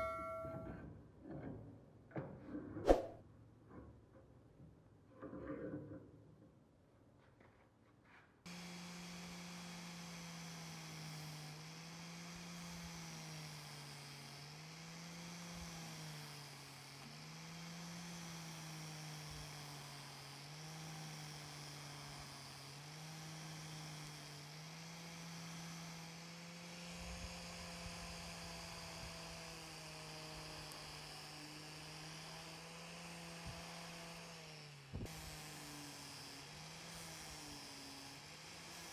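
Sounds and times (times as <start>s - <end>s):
angle grinder motor hum: 8.5s - 38.9s.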